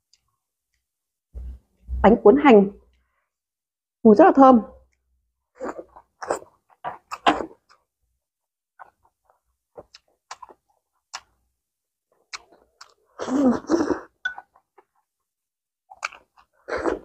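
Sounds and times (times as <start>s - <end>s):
chewing clicks and lip smacks: 8.8s - 11.4s, 12.2s - 13.0s, 15.9s - 16.5s.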